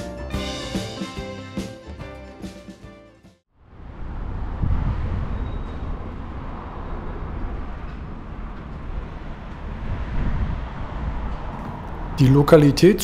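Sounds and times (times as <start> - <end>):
low rumble of road traffic: 3.5 - 13.0.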